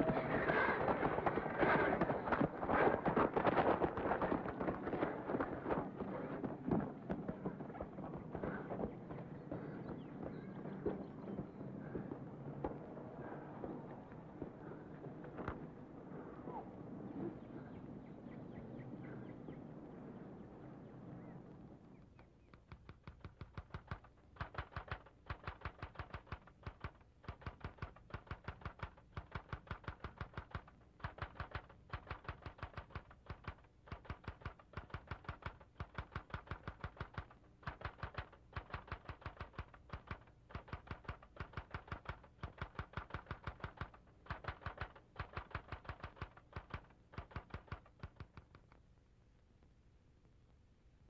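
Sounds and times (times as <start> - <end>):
mechanical typing clatter: 23.0 - 48.5.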